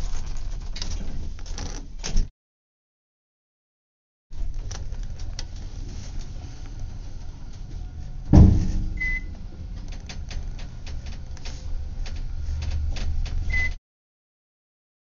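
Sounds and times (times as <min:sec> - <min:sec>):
elevator rumbling: 0:04.4 - 0:13.8
loud thud: 0:08.3 - 0:09.2.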